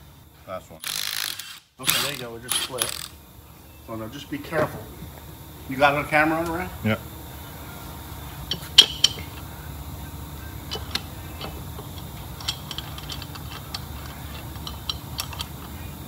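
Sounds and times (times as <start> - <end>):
metal parts clinking: 12.4 - 15.5.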